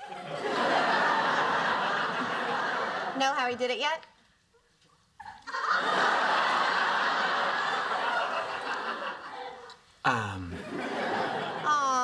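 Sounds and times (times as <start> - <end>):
studio audience laughing: 0.0 - 3.2, 5.2 - 9.7, 10.3 - 12.0.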